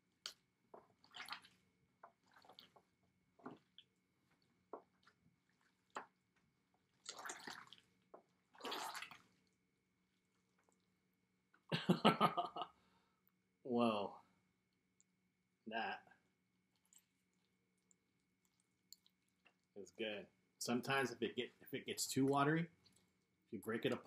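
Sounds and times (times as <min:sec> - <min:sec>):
slime squelching: 0:00.0 - 0:11.1, 0:16.6 - 0:19.8, 0:22.7 - 0:24.0.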